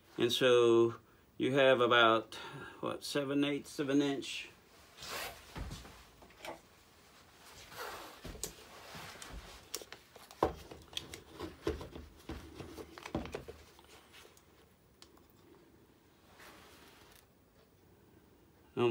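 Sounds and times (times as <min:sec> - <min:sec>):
handling rustling: 0:07.4 - 0:15.4.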